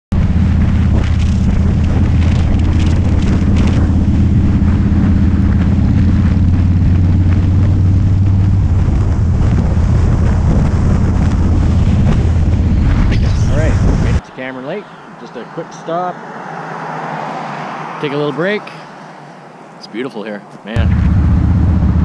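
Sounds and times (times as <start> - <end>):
motorcycle engine running: 0.1 - 14.2, 20.8 - 22.0
wind buffeting microphone: 0.1 - 14.2.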